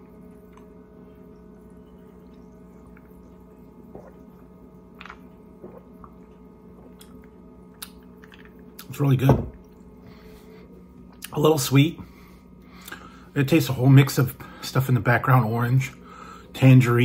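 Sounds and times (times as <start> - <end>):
sipping and swallowing: 0.0 - 10.0
low electrical hum: 0.0 - 17.0.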